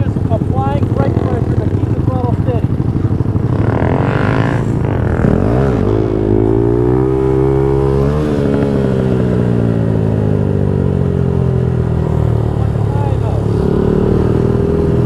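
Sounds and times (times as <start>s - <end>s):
motorcycle engine accelerating: 0.0s - 15.0s.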